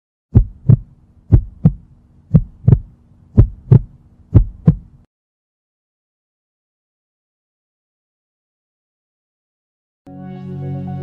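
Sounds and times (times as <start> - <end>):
heartbeat thumps: 0.3 - 5.0
faint low hum: 0.4 - 5.1.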